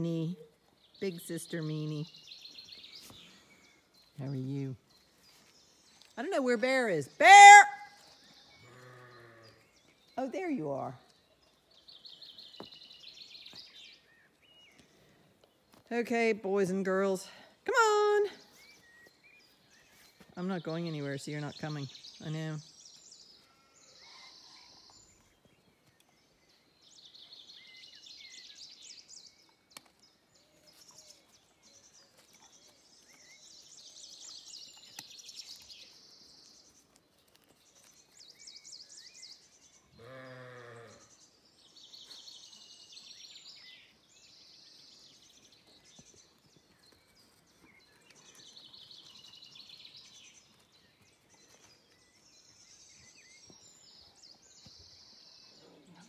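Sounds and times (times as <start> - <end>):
songbirds twittering: 0.0 - 56.0
sheep bleat: 8.6 - 9.6, 40.0 - 41.1.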